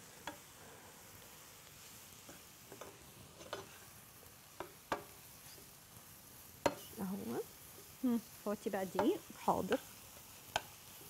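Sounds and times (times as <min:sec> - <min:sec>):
mushrooms frying in butter: 0:00.0 - 0:11.0
wooden spoon scraping a pan: 0:02.2 - 0:04.0, 0:04.6 - 0:05.8.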